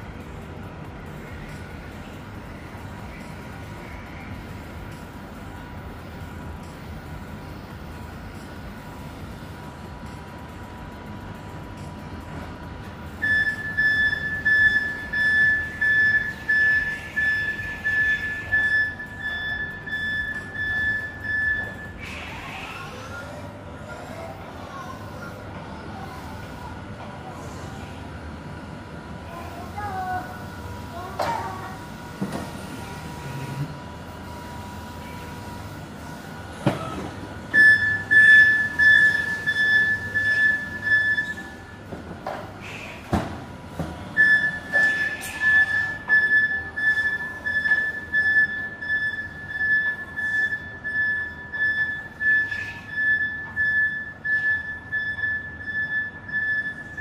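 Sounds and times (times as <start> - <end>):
forklift humming: 0.0 - 57.0
forklift warning alarm beeping: 13.1 - 23.2, 37.4 - 42.0, 43.8 - 57.0.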